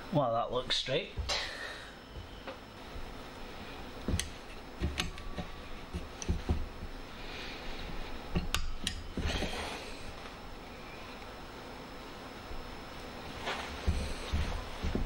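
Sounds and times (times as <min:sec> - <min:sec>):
pliers clicking on metal: 0:08.4 - 0:09.1.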